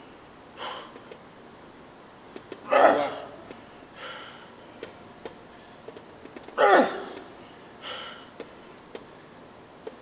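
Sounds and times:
person groaning with exertion: 2.7 - 3.4, 6.6 - 7.2.

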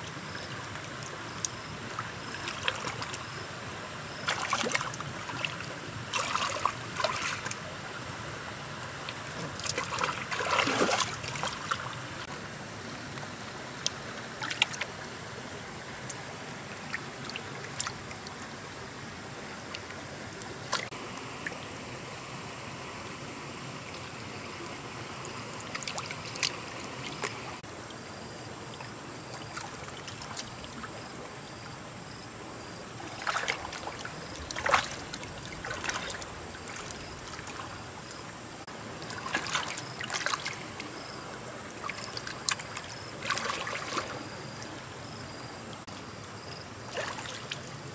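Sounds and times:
trickle of running water: 0.0 - 47.9
splashing in muddy water: 0.1 - 3.4, 4.1 - 7.7, 9.1 - 12.3, 14.3 - 15.0, 25.5 - 27.6, 28.7 - 31.2, 33.0 - 47.9.

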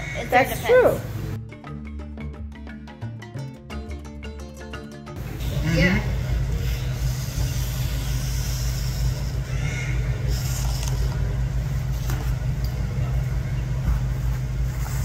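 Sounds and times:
steady low hum: 5.2 - 15.0
short hissing noises: 6.6 - 9.5.

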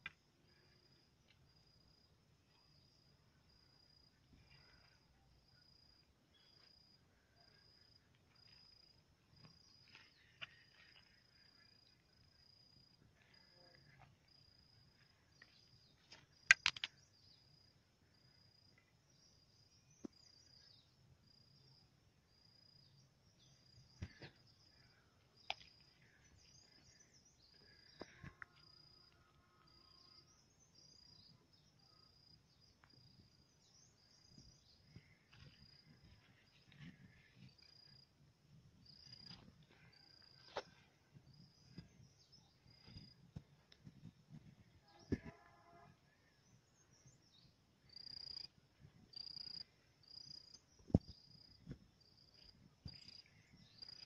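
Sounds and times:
insect chirping: 0.0 - 54.0
sharp clicks: 16.5 - 17.0.

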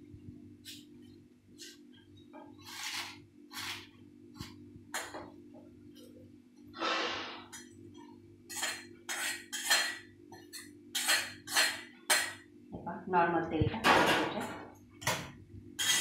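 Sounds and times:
metal spatula scraping in iron pan: 8.5 - 10.0, 15.8 - 16.0.

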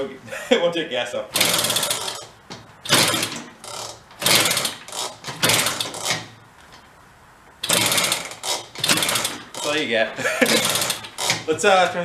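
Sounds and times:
small engine kick-start chatter: 10.4 - 11.5.

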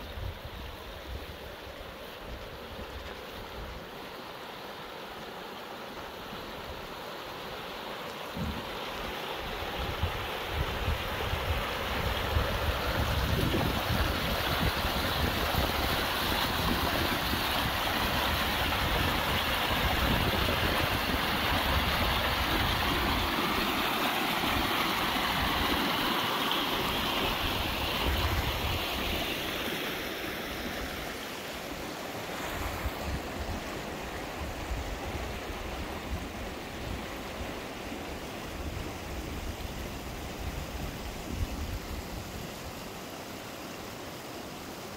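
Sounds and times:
river water rushing: 0.0 - 44.9
wind buffeting microphone: 9.5 - 23.4.

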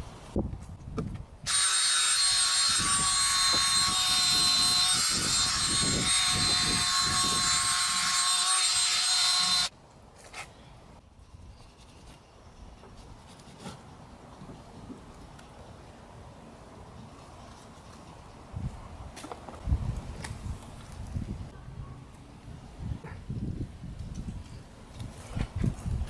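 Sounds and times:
electric drill motor whine: 1.5 - 9.7.

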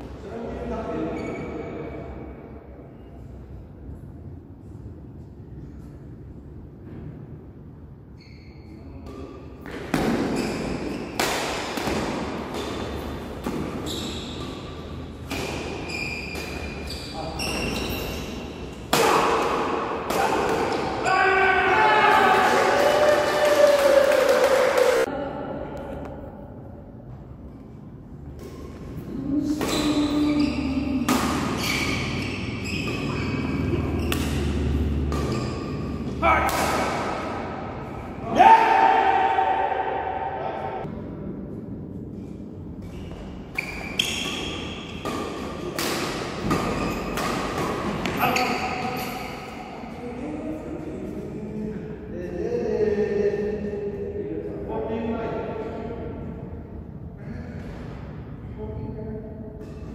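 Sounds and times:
shoes squeaking on court floor: 1.0 - 2.2, 8.1 - 11.2, 12.4 - 18.8, 29.6 - 36.2, 42.8 - 49.6
rackets hitting shuttlecock: 9.0 - 16.9, 18.7 - 21.0, 31.0 - 37.7, 42.8 - 49.6.

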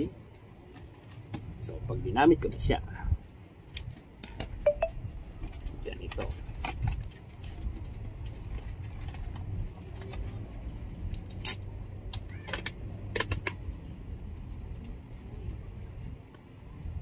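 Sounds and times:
sharp chin strap clicks: 11.1 - 13.6.

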